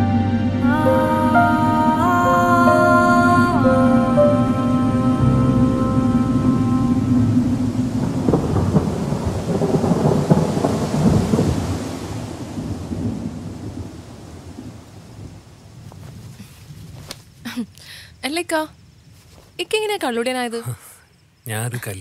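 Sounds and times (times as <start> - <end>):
held music notes: 0.0 - 8.6
thunder rumbling and cracking: 5.2 - 15.9.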